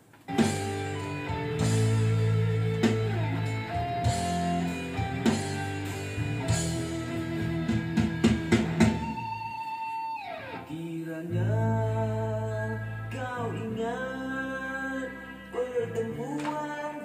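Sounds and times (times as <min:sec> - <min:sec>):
drum kit: 0:00.0 - 0:09.9
guitar: 0:00.0 - 0:17.0.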